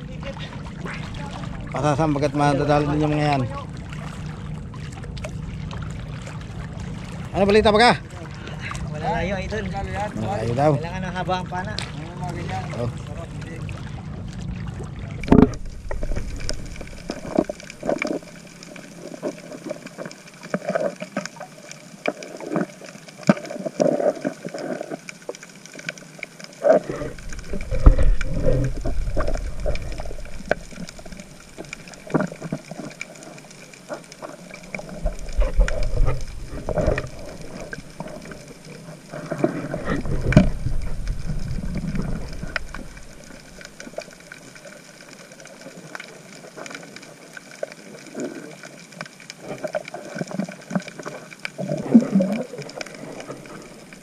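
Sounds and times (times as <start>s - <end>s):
muffled water rush: 0.0s - 54.0s
sharp underwater clicks: 15.2s - 54.0s.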